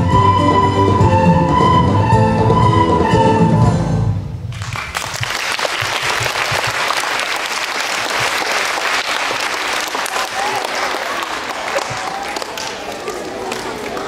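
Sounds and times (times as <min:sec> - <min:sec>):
held musical note: 0:00.0 - 0:04.3
audience applauding: 0:04.5 - 0:14.0.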